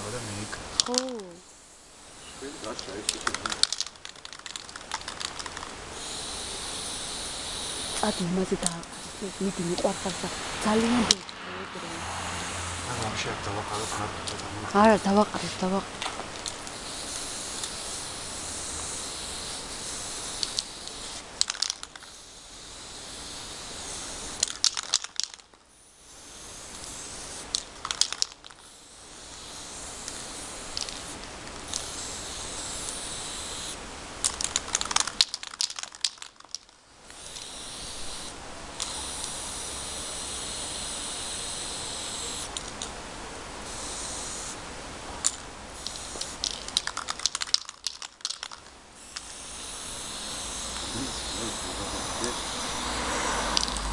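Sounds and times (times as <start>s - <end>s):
spray can hissing: 0.3s - 42.9s, 43.6s - 44.6s, 45.2s - 53.9s
sharp clicking: 0.8s - 1.2s, 2.7s - 6.6s, 20.3s - 22.1s, 26.7s - 28.6s, 45.2s - 52.6s, 53.5s - 53.9s.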